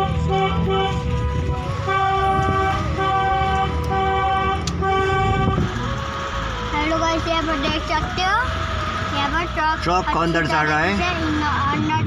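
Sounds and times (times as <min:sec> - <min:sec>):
vehicle horn blasts: 0:00.0 - 0:07.1
car driving on road: 0:00.0 - 0:12.0.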